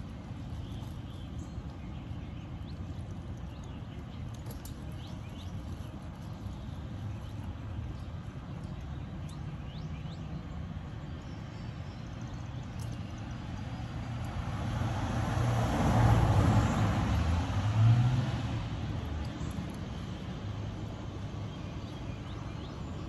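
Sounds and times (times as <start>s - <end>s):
vehicle engine rumble passing: 13.8s - 21.0s.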